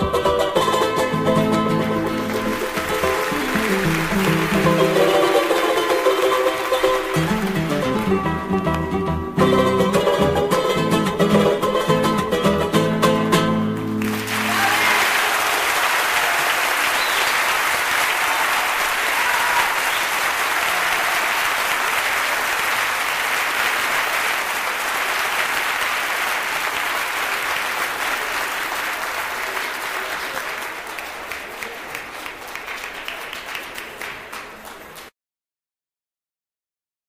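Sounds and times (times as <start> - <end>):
guitars and plucked strings playing: 0.0 - 14.4
audience applause: 0.8 - 8.7, 13.8 - 35.1.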